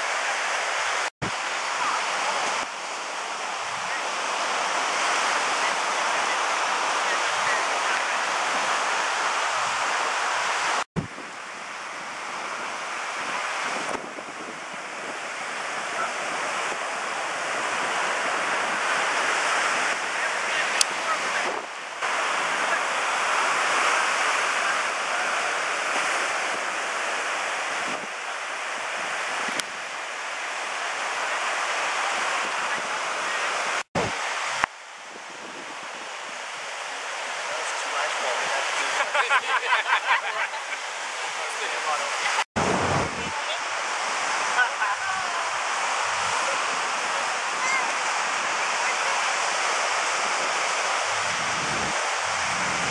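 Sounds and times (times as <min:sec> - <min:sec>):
ocean surf breaking: 0:00.0 - 0:52.9
wind buffeting microphone: 0:06.6 - 0:29.8, 0:32.1 - 0:36.9, 0:42.6 - 0:52.9.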